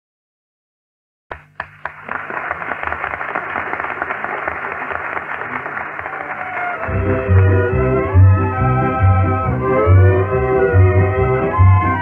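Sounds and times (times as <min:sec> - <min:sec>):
audience applauding: 0:01.3 - 0:08.6, 0:10.8 - 0:12.0.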